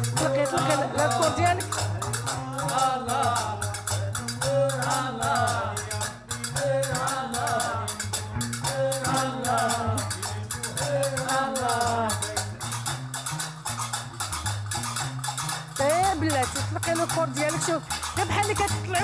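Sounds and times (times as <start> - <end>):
voices singing: 0.0 - 13.6
iron castanets clacking: 0.0 - 19.0
plucked lute notes: 0.0 - 19.0.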